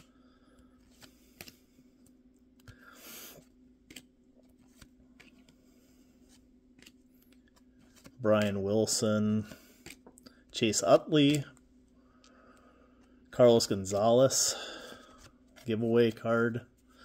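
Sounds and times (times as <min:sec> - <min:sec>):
low steady hum: 0:00.0 - 0:17.0
paper cards flicking: 0:00.9 - 0:01.7, 0:03.8 - 0:05.4.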